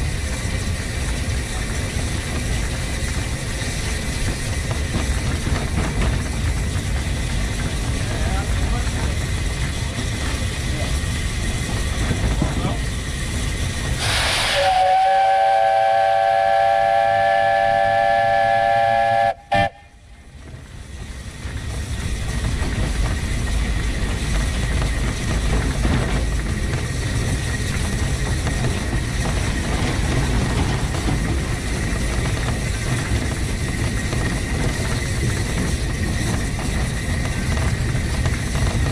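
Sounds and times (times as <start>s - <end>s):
locomotive running on track: 0.0s - 38.9s
steam locomotive whistle chord: 14.0s - 20.0s.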